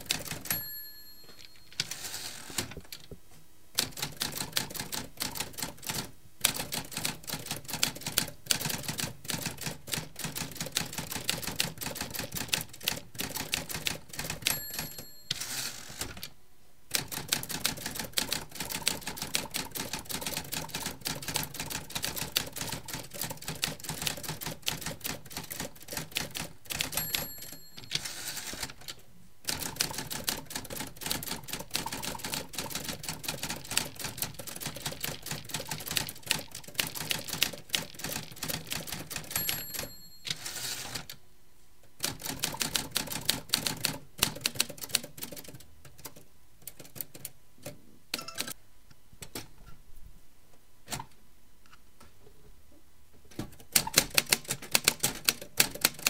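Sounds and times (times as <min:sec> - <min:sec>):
typewriter bell ringing: 0:00.3 - 0:02.4, 0:14.4 - 0:15.9, 0:26.8 - 0:28.6, 0:39.2 - 0:40.9
typewriter carriage return: 0:20.2 - 0:41.2.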